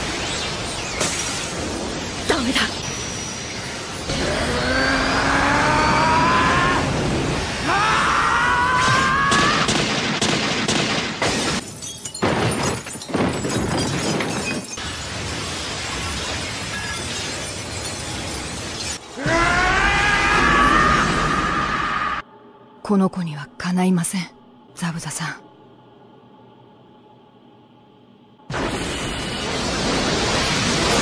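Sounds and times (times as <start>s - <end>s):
rising shouts: 4.1s - 9.7s, 19.1s - 22.3s
steady rushing noise: 25.6s - 31.0s.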